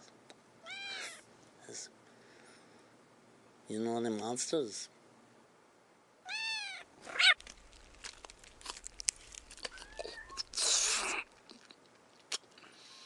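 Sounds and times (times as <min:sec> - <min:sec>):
cat meowing: 0:00.6 - 0:01.2, 0:06.2 - 0:07.4.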